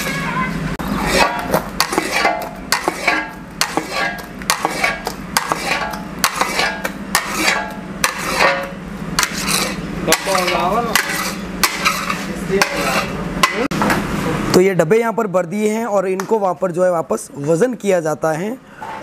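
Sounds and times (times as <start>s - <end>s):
spatula scraping metal pan: 0.0s - 13.2s
steady low hum: 0.0s - 19.0s.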